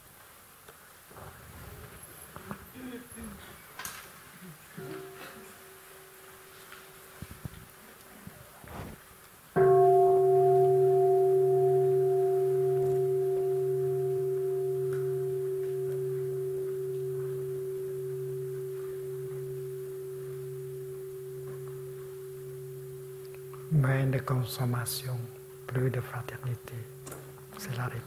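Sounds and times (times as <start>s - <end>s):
bowl bell ringing: 4.8s - 7.0s, 9.6s - 28.0s.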